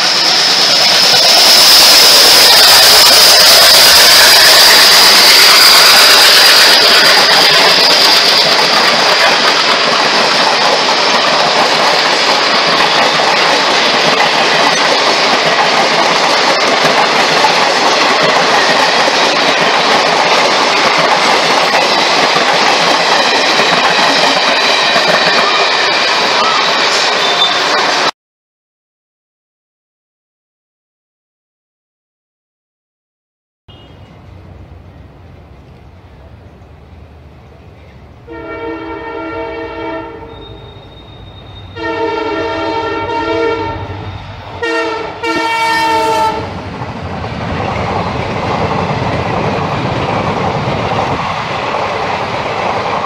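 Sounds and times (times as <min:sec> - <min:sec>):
high steady squeal: 0:00.0 - 0:09.6, 0:40.2 - 0:41.8, 0:43.7 - 0:44.6
train wheels rushing on rails: 0:00.0 - 0:28.1, 0:33.7 - 0:53.0.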